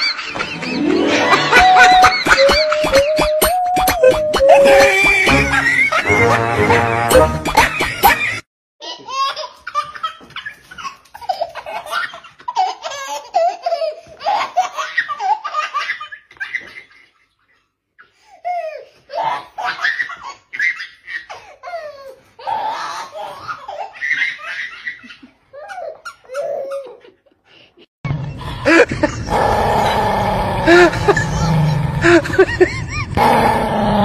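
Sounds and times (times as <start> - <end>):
laughter: 0.0 - 8.4, 15.8 - 17.7, 28.4 - 29.4, 30.7 - 33.2.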